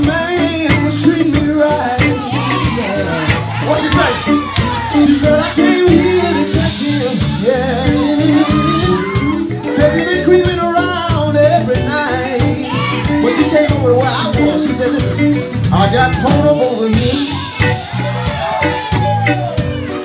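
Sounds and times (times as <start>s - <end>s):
man singing: 0.0s - 17.8s
bass guitar: 0.0s - 20.0s
drum kit steady beat: 0.0s - 20.0s
electric guitar: 0.0s - 20.0s.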